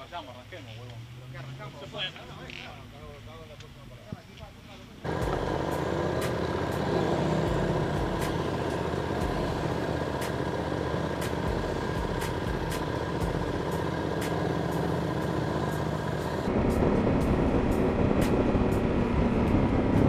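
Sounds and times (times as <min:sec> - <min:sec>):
motorcycle engines rumbling: 0:05.0 - 0:20.0.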